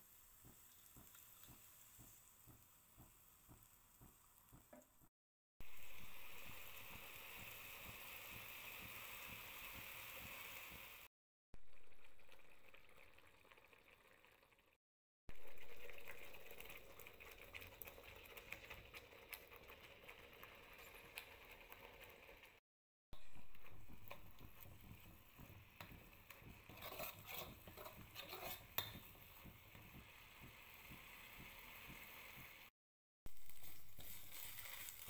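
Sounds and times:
paste sizzling in oil: 0.0s - 5.0s, 5.6s - 11.1s, 15.3s - 22.6s, 23.2s - 32.7s, 33.3s - 35.0s
oil crackling spatters: 33.3s - 35.0s.

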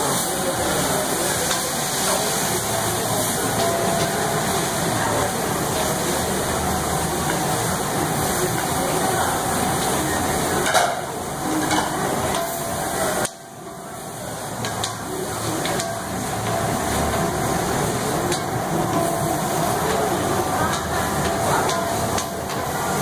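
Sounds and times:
food sizzling on griddle: 0.0s - 23.0s
sticks tapping and scraping griddle: 14.6s - 23.0s.

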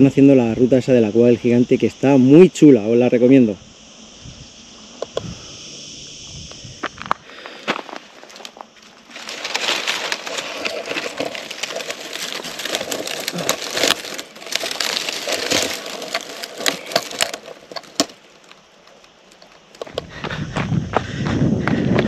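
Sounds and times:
footsteps crunching on stony ground: 6.4s - 22.0s.

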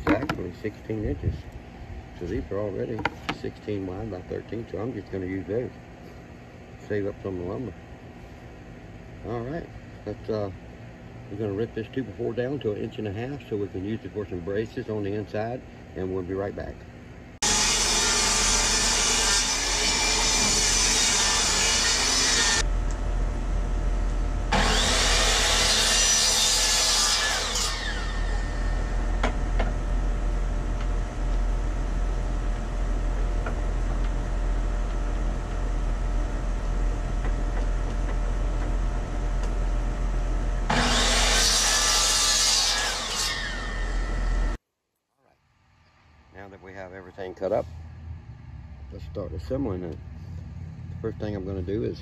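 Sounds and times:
saw blade cutting wood: 17.4s - 22.7s, 24.5s - 29.8s, 40.7s - 44.6s
table saw motor running: 17.4s - 44.6s.

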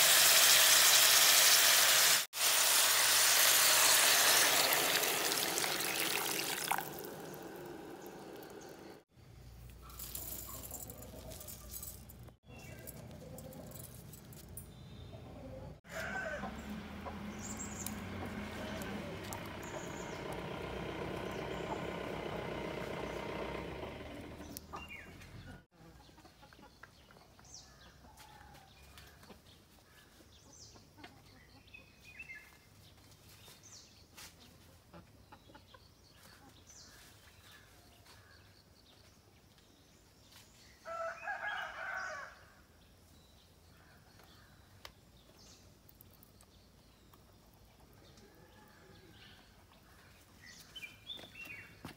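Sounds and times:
loud chicken call: 15.8s - 22.6s.

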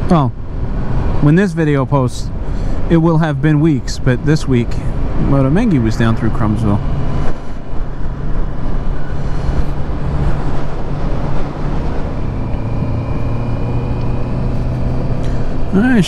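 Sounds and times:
wind and road noise: 0.0s - 16.0s
motorcycle engine cruising: 5.0s - 16.0s.

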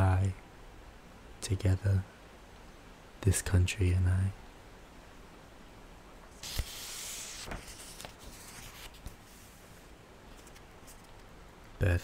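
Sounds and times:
book pages rustling: 6.3s - 11.4s.

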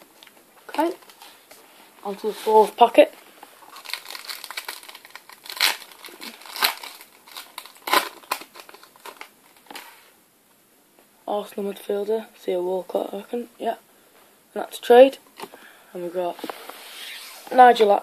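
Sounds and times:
foil packet crinkling: 3.6s - 10.0s.

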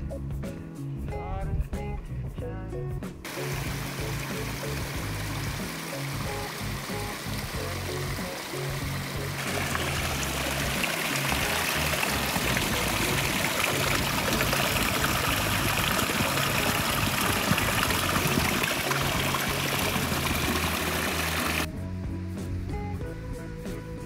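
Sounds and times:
background music with bass line: 0.0s - 24.0s
stream trickling over rocks: 3.3s - 21.7s
water pouring into plastic bottle: 3.3s - 21.7s.

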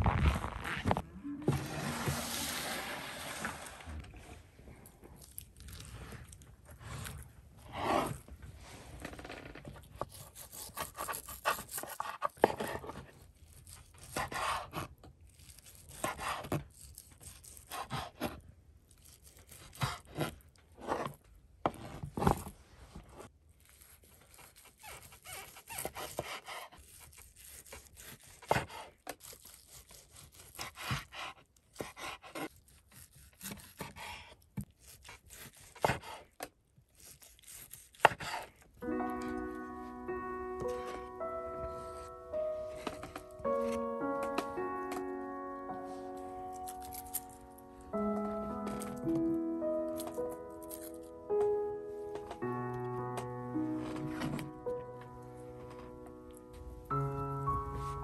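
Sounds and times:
knife slicing meat on cutting board: 10.0s - 12.6s.

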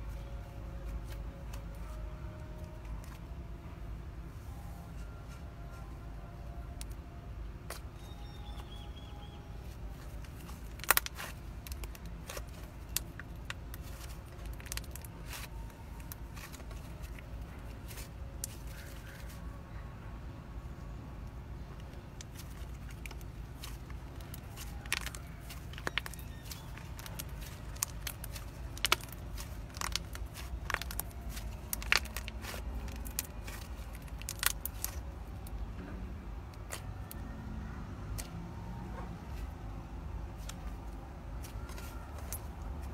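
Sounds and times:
low steady hum: 0.0s - 42.9s
sticky clicks and pops: 21.9s - 35.6s.

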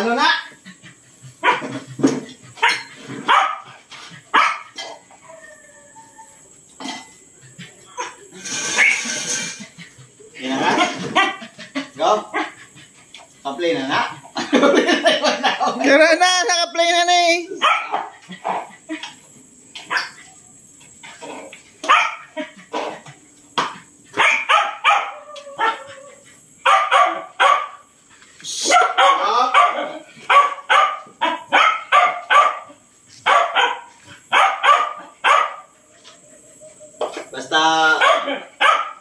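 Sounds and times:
dogs barking: 0.5s - 5.1s, 7.5s - 12.8s, 17.6s - 19.2s, 19.8s - 20.2s, 21.2s - 28.0s, 28.6s - 36.5s, 37.8s - 39.0s.

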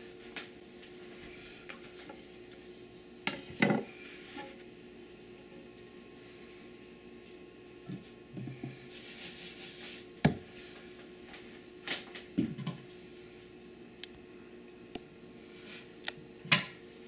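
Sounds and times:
faint steady hum: 0.0s - 17.0s
brushing rustle: 8.8s - 10.1s.

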